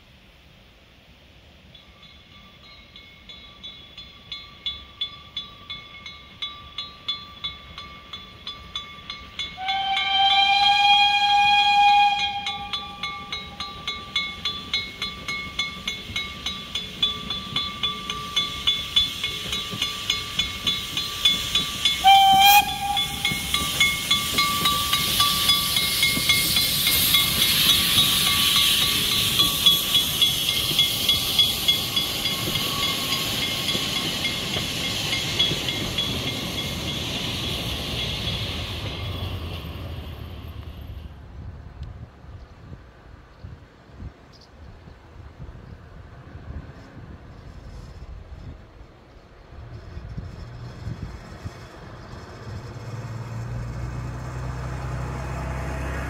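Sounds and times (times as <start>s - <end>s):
steam hissing: 0.0s - 41.2s
steam locomotive exhaust chuffs: 1.6s - 41.6s, 46.1s - 56.0s
steam whistle: 9.6s - 14.1s, 21.8s - 28.9s.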